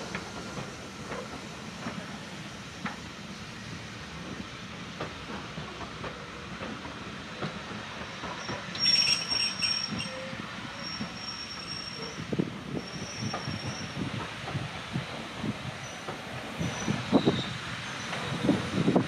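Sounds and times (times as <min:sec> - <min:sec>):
train wheels clicking over rail joints: 0:00.0 - 0:19.0
high-pitched wheel squeal: 0:08.4 - 0:12.2, 0:12.8 - 0:14.0.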